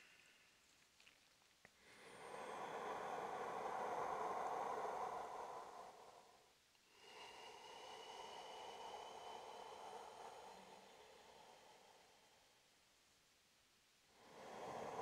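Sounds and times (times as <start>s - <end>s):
slow deep breathing: 1.8s - 12.8s, 14.1s - 15.0s.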